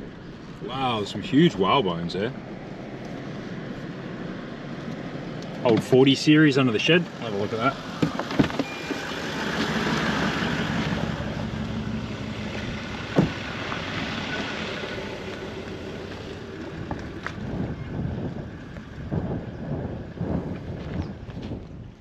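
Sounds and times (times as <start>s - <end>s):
low vehicle hum: 0.0s - 22.0s
wind on microphone: 12.5s - 22.0s
sharp thump: 13.1s - 13.5s
footsteps on gravel: 20.4s - 21.7s.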